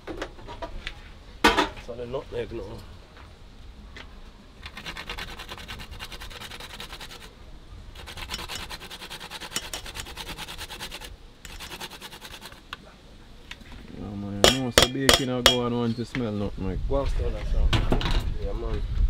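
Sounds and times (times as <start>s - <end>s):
nutmeg grated on metal grater: 4.7s - 7.3s, 8.0s - 12.6s.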